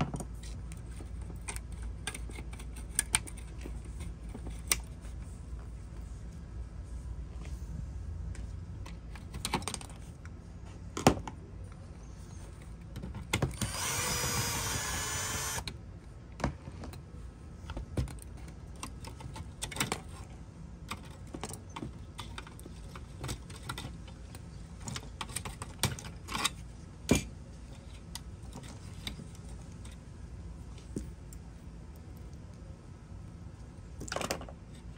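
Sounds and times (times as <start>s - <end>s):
clicks and knocks of parts handled: 0.0s - 5.7s, 8.3s - 30.1s
power screwdriver whirring: 13.6s - 15.7s.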